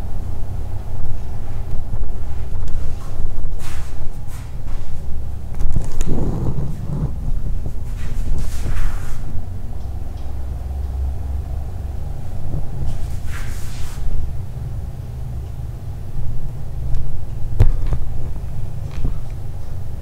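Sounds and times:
camera handling rumble: 0:05.5 - 0:09.1.

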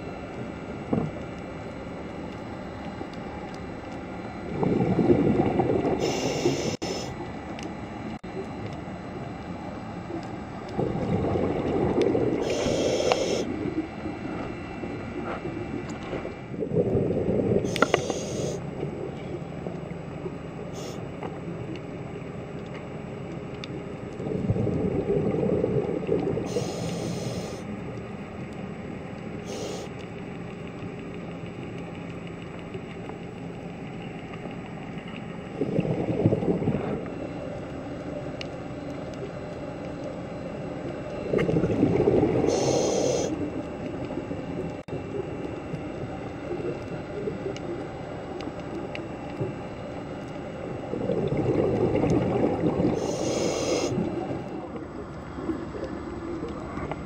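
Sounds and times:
faint steady hum: 0:00.0 - 0:57.0
bubbling exhales underwater: 0:04.4 - 0:06.8, 0:10.6 - 0:14.3, 0:16.5 - 0:18.3, 0:24.2 - 0:27.6, 0:35.5 - 0:37.2, 0:41.1 - 0:43.6, 0:50.7 - 0:57.0
hissing regulator inhales: 0:06.0 - 0:07.1, 0:12.4 - 0:13.5, 0:17.7 - 0:18.6, 0:26.5 - 0:27.7, 0:29.4 - 0:29.9, 0:42.4 - 0:43.4, 0:53.0 - 0:54.1.

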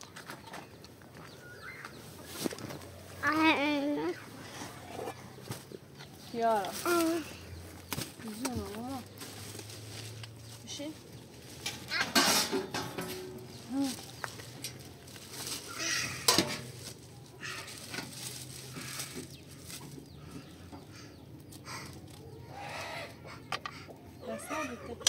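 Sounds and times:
metallic clank: 0:11.6 - 0:13.4
metal cookware clattering: 0:11.6 - 0:13.5, 0:16.1 - 0:16.8
farm animals calling faintly: 0:17.2 - 0:25.0.

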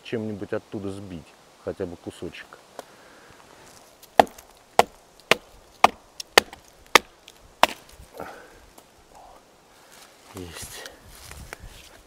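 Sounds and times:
sharp knocks on tree growth: 0:04.0 - 0:08.0.

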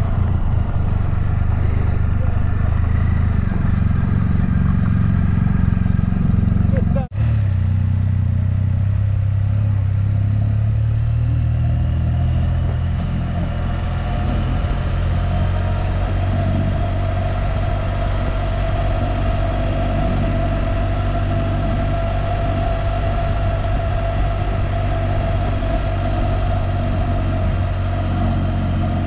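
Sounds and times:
motorcycle engine running: 0:00.0 - 0:29.0
high steady whine: 0:12.9 - 0:29.0.

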